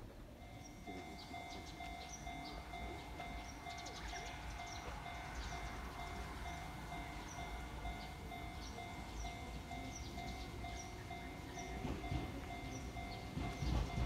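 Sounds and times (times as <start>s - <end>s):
train rumble: 0.0s - 14.0s
level crossing alarm ringing: 0.3s - 14.0s.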